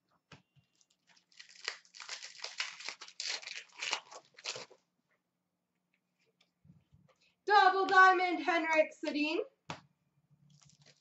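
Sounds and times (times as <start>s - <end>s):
foil wrapper crinkling: 0.7s - 4.8s, 10.5s - 11.0s.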